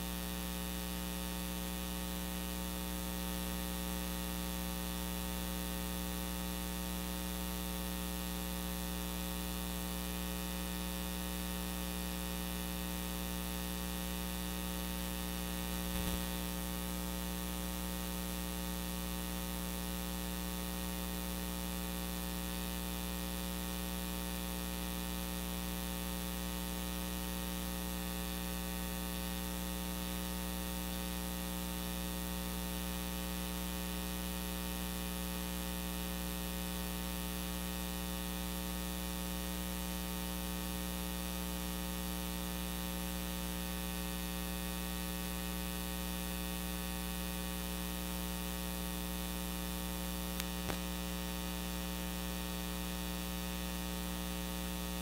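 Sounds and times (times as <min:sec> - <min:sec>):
electrical hum and buzz: 0:00.0 - 0:33.9, 0:46.0 - 0:55.0
faint click: 0:50.4 - 0:50.9.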